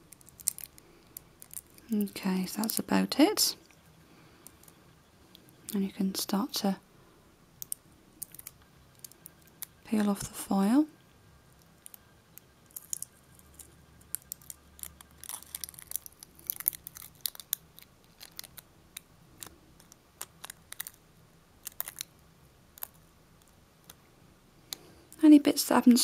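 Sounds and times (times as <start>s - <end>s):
foil peeling with crinkles: 0.1s - 2.9s, 12.7s - 18.6s, 19.4s - 21.0s.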